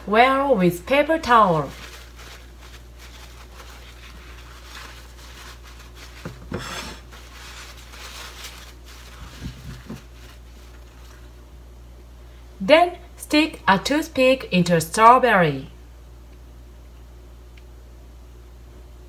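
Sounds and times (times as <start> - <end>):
paper towel rustling: 0.6 - 11.5.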